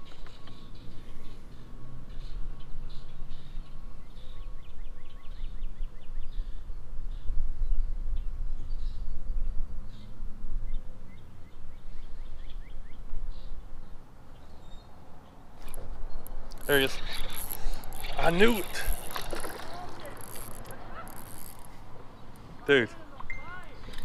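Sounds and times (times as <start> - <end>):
low river rumble: 15.5 - 24.0.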